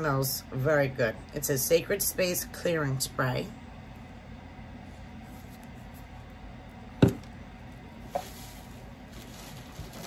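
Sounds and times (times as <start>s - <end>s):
shredded paper rustling: 8.0s - 10.0s.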